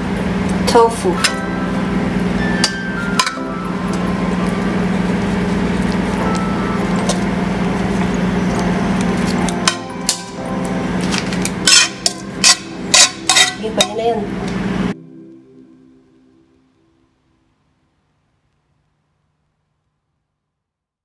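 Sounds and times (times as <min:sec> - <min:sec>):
steady low hum: 0:00.0 - 0:19.3
metal spatula scraping frying pan: 0:11.1 - 0:14.0
spatula clinking against pan: 0:11.6 - 0:14.0.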